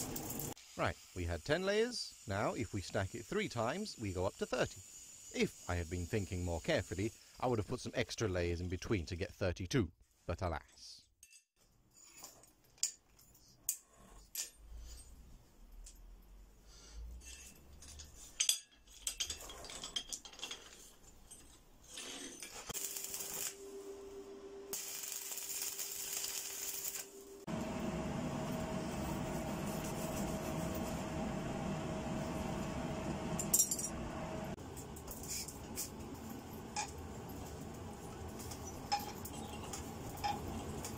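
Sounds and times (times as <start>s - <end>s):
electric welder crackling: 0.0s - 0.6s, 22.7s - 24.0s, 24.7s - 27.4s
steel pieces clinking: 17.2s - 23.6s, 33.5s - 34.0s, 35.0s - 40.9s
coal forge roaring under air blast: 27.0s - 34.6s.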